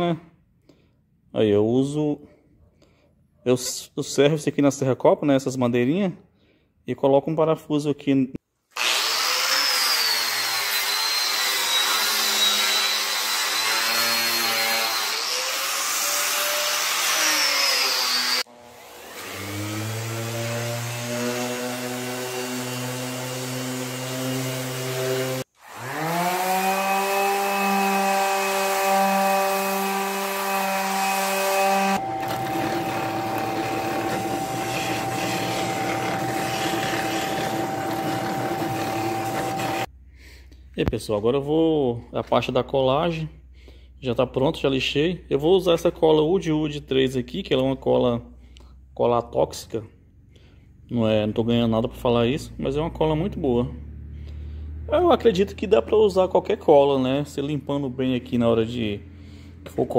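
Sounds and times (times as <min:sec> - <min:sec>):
hand sander high whine: 0:08.8 - 0:39.9
random orbital sander running: 0:20.6 - 0:39.9
drill press humming: 0:31.8 - 0:39.9
motor spinning up: 0:32.0 - 0:39.9.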